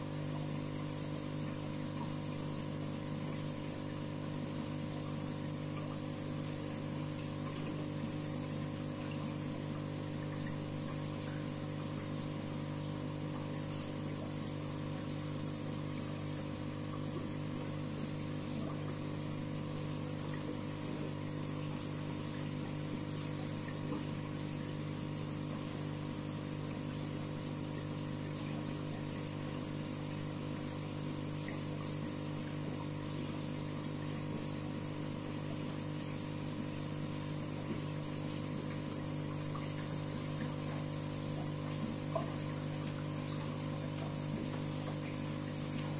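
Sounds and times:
aquarium pump humming: 0.0s - 45.9s
faint small ticks: 27.6s - 34.6s, 35.3s - 45.9s.

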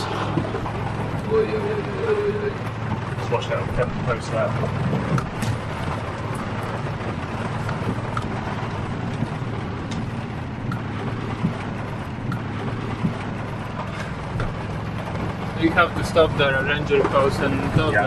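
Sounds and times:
truck engine and tyre rumble: 0.0s - 18.0s
sharp clicks and knocks: 2.6s - 16.2s.

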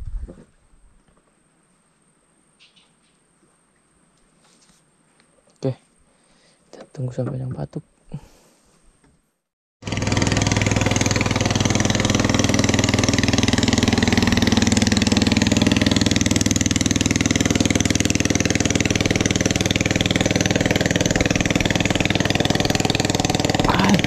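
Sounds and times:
small boat engine running: 9.8s - 24.0s.

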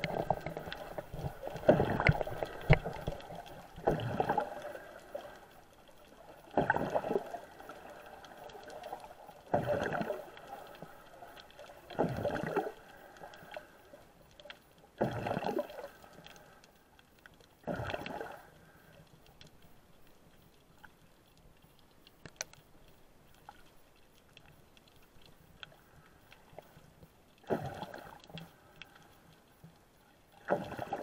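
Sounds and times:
faint water hiss: 0.0s - 31.0s
underwater swishing and gurgling: 0.0s - 31.0s.

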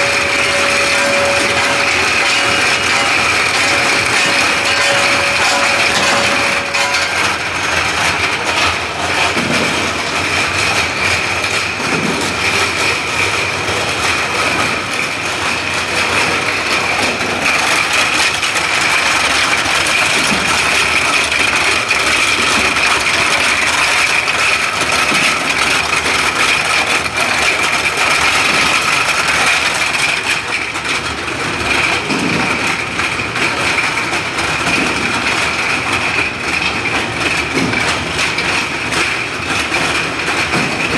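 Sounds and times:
machine running: 0.0s - 40.9s
plastic bottles clattering: 0.0s - 40.9s.

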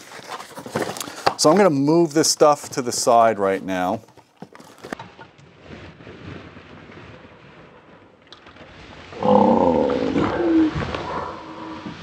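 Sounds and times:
faint rustling of packing: 0.0s - 8.0s
loud squeaky groan of foam: 9.2s - 12.0s.

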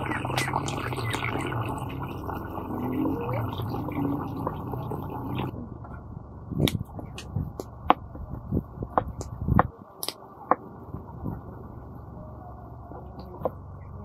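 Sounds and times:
water sloshing in basin: 0.0s - 5.5s.

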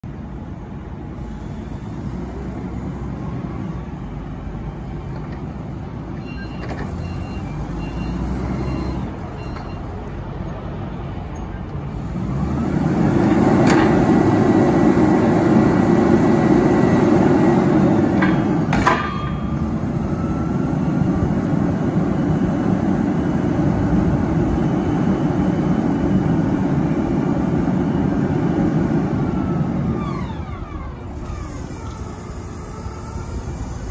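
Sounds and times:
forklift engine running: 0.0s - 33.9s
faint beeps: 6.2s - 10.0s.

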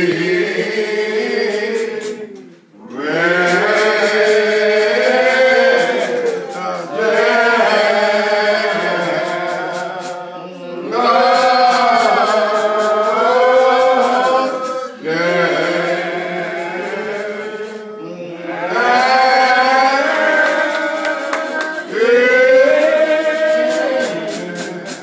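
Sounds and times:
man singing hymn into microphone: 0.0s - 25.0s.

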